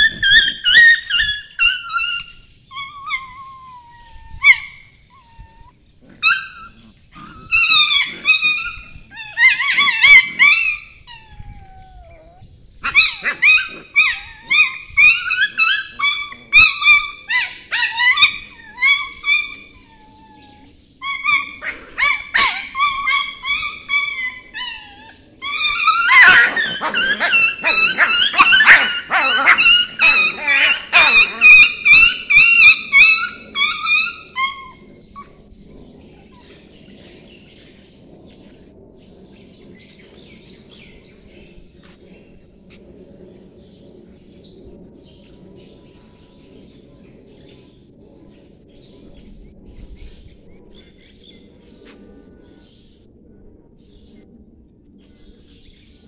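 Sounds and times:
puppies yelping and squealing: 0.0s - 37.0s.

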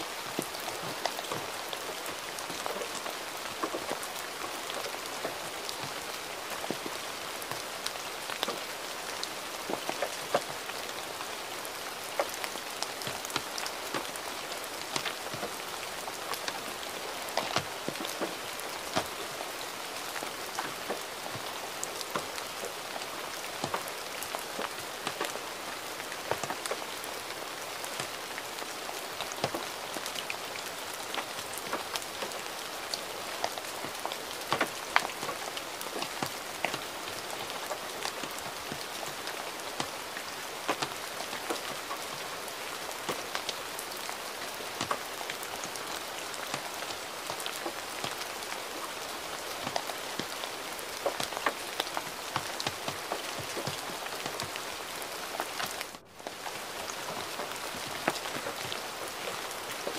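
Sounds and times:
gentle rain falling: 0.0s - 59.9s.

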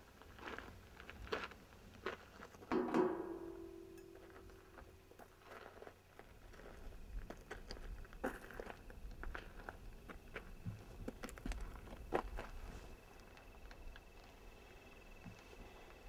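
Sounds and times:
footsteps on gravel: 0.2s - 13.2s
ringing tone: 2.8s - 4.8s.

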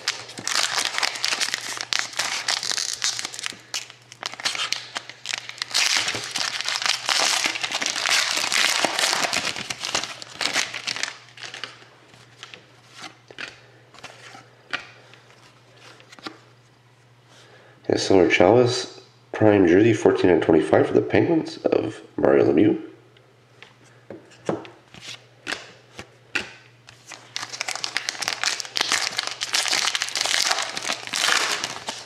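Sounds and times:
plastic wrapper crinkling and tearing: 0.0s - 13.2s, 26.9s - 32.0s.

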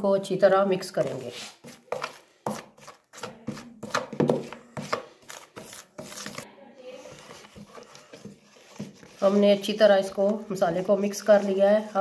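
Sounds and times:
utensil scraping a bowl: 1.0s - 12.0s.

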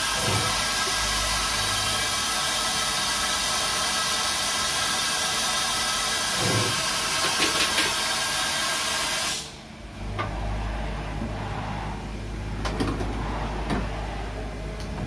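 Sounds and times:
machining centre drilling: 0.0s - 9.6s.

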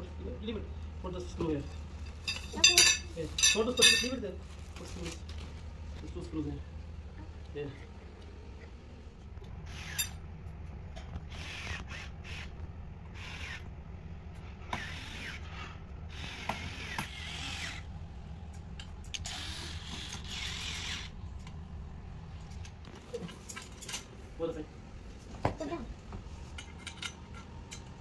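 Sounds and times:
electric screwdriver whirring: 11.2s - 13.7s, 14.7s - 15.5s, 16.1s - 17.8s, 19.1s - 21.1s.

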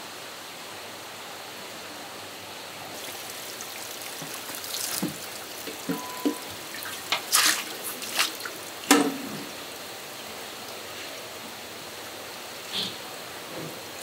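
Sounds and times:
running water: 2.5s - 14.0s
water splashes and wet knocks: 3.0s - 9.8s.

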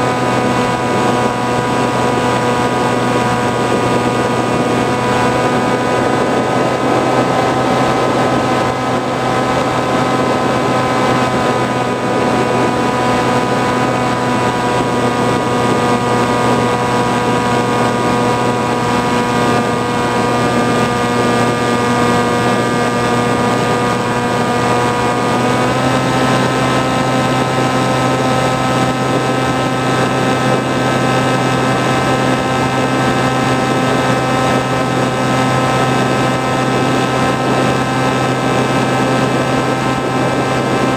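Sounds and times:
motor and propeller hum: 0.0s - 40.9s
rush of air: 0.1s - 40.9s.

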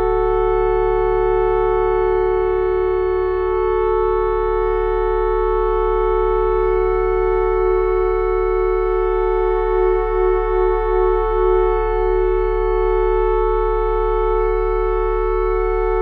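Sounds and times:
theremin sustained chord: 0.0s - 16.0s.

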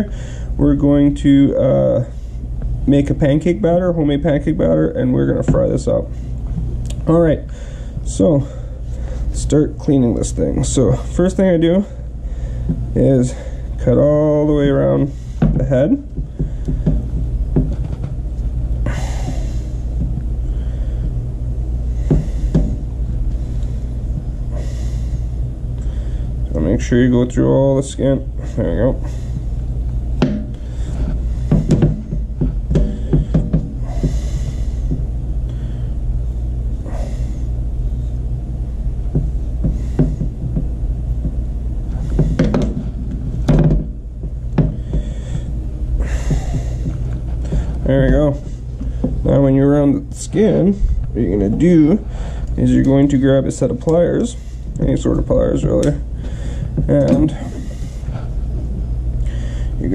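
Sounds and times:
steady low rumble: 0.0s - 59.9s
low rumble of camera moving: 46.4s - 53.8s.

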